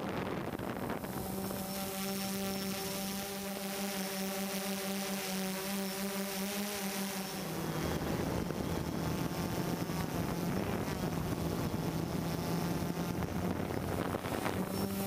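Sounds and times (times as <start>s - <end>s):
rushing wind: 0.0s - 3.6s, 7.3s - 15.0s
quadcopter propellers humming: 0.0s - 15.0s.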